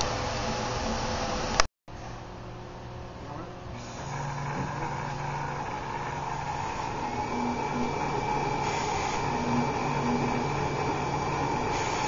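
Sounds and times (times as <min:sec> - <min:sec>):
low motor hums: 0:00.0 - 0:12.0
engraving machine whirring: 0:03.8 - 0:12.0.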